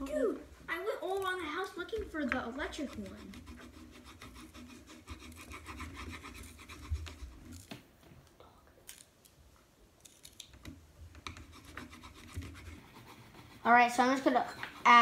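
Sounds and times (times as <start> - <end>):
pencil scratching on paper: 1.1 - 7.7, 11.2 - 15.0.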